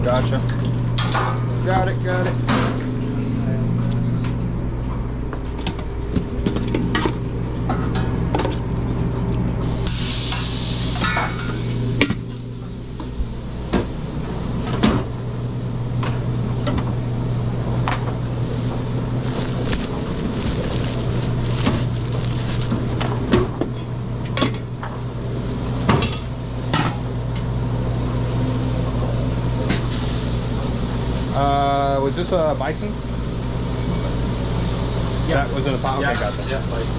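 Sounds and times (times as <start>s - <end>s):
steady machinery hum: 0.0s - 36.9s
food sizzling on griddle: 9.6s - 12.0s, 18.4s - 23.0s, 29.8s - 31.4s.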